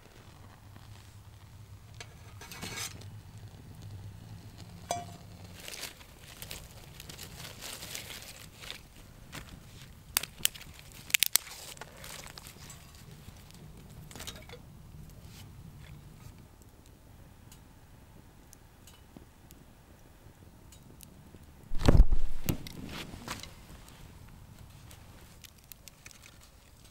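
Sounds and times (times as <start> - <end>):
wood fire crackling: 0.0 - 26.9
twigs rustling and cracking: 4.5 - 16.7, 21.7 - 26.9.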